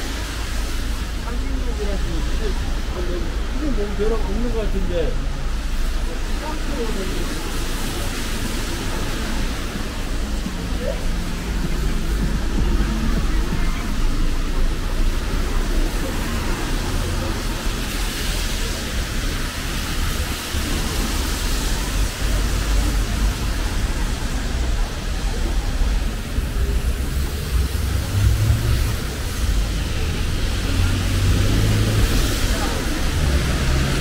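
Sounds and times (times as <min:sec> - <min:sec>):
rain hiss: 0:00.0 - 0:34.0
wet street noise: 0:00.0 - 0:34.0
low rumble: 0:07.6 - 0:34.0.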